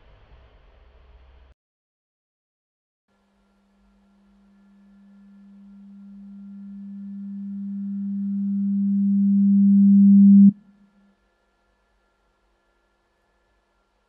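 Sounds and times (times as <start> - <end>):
low electronic tone: 3.8 - 10.8.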